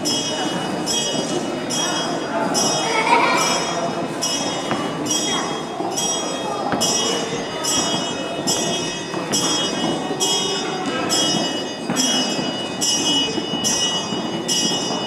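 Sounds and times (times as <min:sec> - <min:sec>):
bell ringing: 0:00.0 - 0:15.0
murmur of crowd voices: 0:00.0 - 0:15.0.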